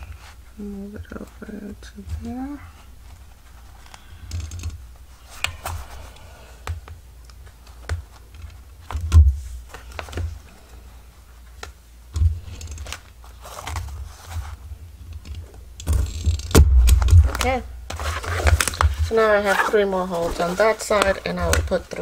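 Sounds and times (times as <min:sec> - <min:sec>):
paper handling taps and clicks: 0:20.3 - 0:22.0.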